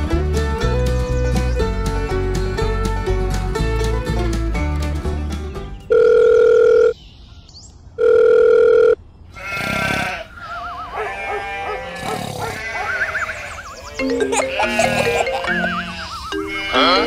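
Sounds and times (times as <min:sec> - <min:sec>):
sheep or goats bleating: 0:09.3 - 0:15.7, 0:16.5 - 0:17.0.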